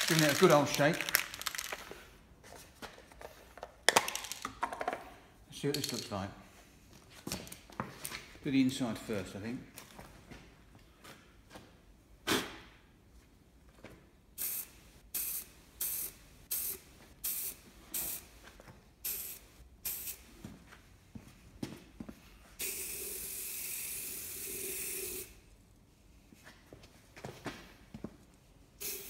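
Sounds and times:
spray paint can hissing: 0.0s - 1.8s, 14.4s - 18.3s, 19.0s - 20.3s, 22.6s - 25.4s, 28.8s - 29.0s.

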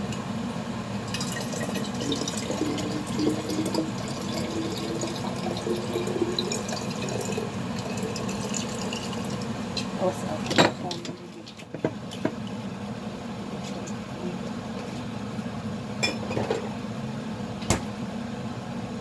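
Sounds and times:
rising tone of filling bottle: 1.0s - 9.7s
water pouring into a bottle: 1.1s - 9.5s.

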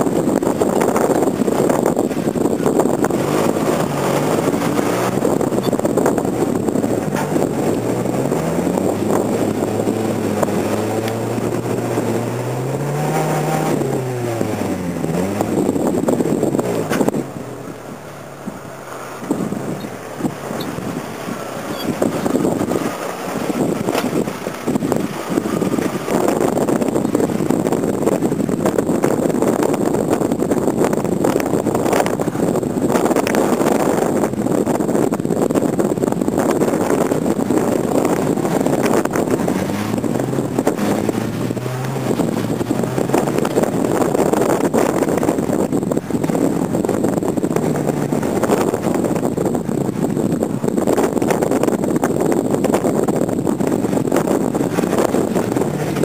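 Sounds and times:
off-road vehicle engine under load: 0.0s - 56.0s
wind buffeting microphone: 0.0s - 56.0s.

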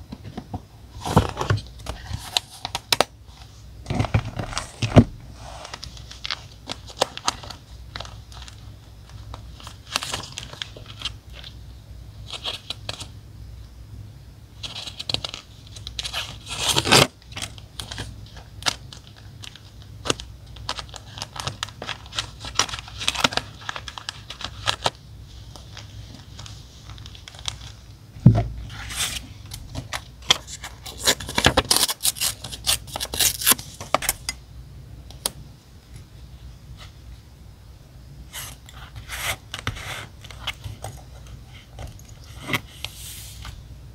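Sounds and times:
paper rustling: 14.6s - 27.9s
tape peeling: 30.3s - 33.7s.

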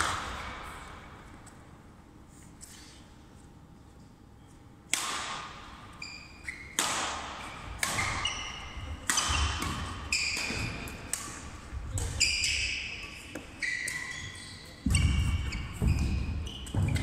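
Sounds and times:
badminton racket hitting shuttlecock: 4.9s - 5.8s, 6.6s - 14.2s
shoes squeaking on wooden floor: 13.3s - 17.0s.

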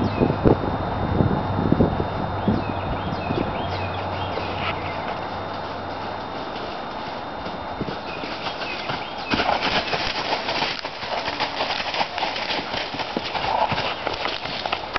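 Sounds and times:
horse hoofbeats on forest ground: 3.2s - 14.9s.

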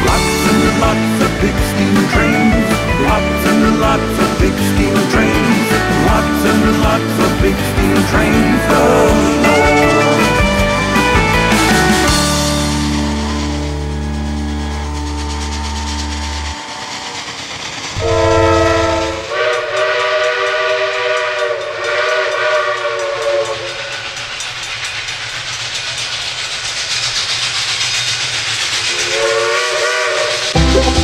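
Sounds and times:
steam locomotive chime whistle: 0.0s - 17.3s, 17.9s - 24.1s, 28.9s - 31.0s
steady steam hiss: 14.1s - 30.6s
music track closing chord: 30.6s - 31.0s.

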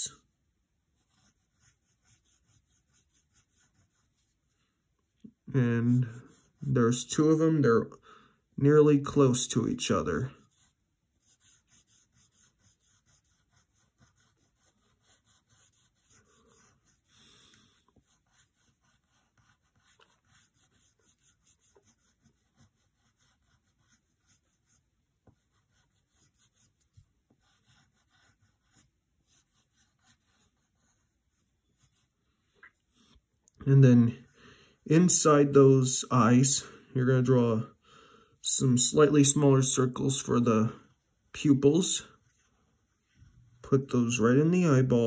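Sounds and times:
pencil scratching on paper: 1.0s - 4.6s, 5.6s - 7.4s, 9.2s - 32.3s, 38.8s - 45.0s.

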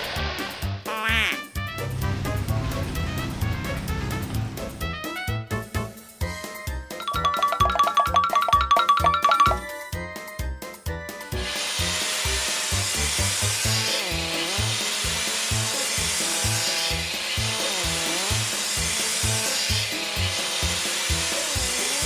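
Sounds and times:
cartoon spray hissing: 0.9s - 1.4s.

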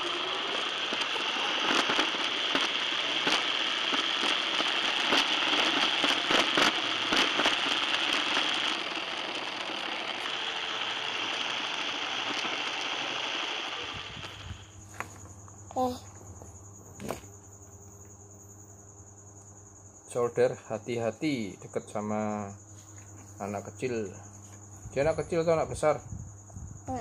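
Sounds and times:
scattered clicks: 0.1s - 14.6s.

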